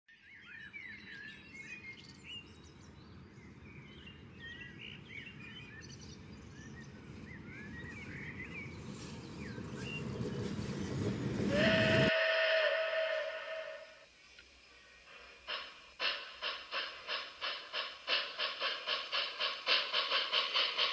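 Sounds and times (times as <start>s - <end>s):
small birds chirping: 0.1s - 12.1s
model train rumble: 8.6s - 12.2s, 14.6s - 20.9s.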